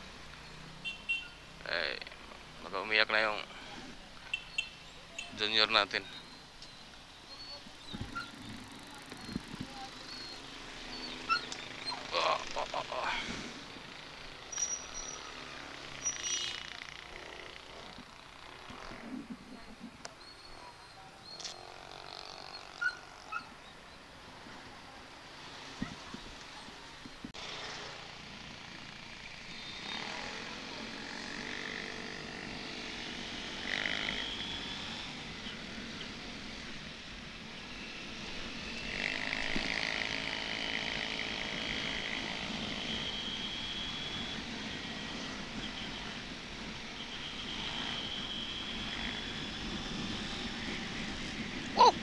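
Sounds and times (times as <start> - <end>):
motorcycle engine accelerating: 38.6 - 45.4.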